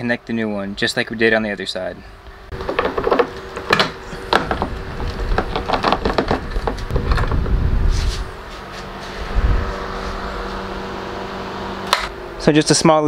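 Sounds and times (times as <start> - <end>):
dull rumble of handling: 1.9 - 12.5
wiring harness clicks and rattles: 2.6 - 7.4.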